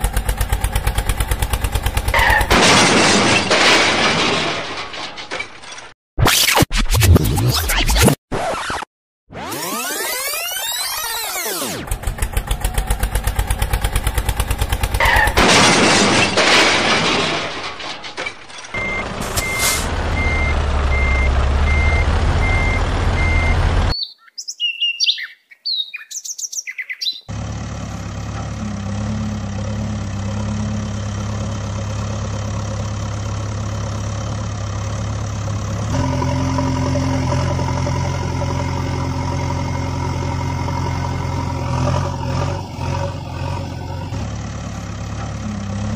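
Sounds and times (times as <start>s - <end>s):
vehicle engine running: 0.0s - 2.6s, 11.6s - 17.0s, 18.8s - 23.9s, 27.3s - 45.9s
reversing alarm beeping: 18.8s - 23.6s
bird chirps: 23.9s - 27.3s.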